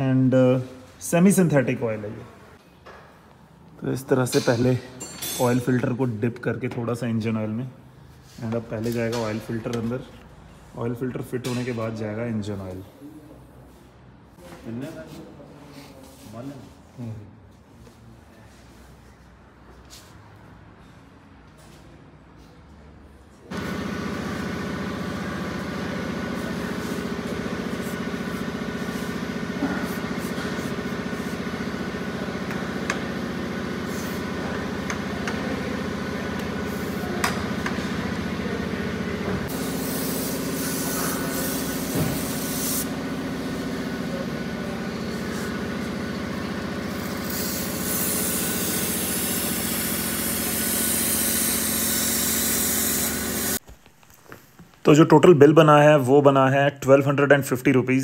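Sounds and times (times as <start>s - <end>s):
aerosol spray hissing: 39.5s - 43.0s, 47.2s - 53.6s.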